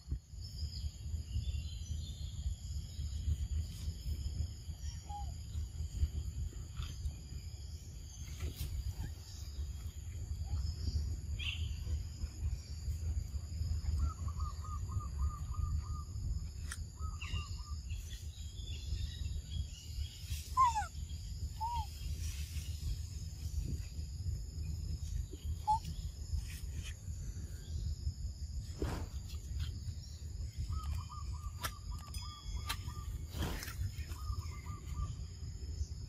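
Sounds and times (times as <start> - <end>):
insect drone: 0.0 - 36.0
bird calls: 4.0 - 12.8, 13.6 - 23.8, 24.6 - 27.9, 28.8 - 35.4.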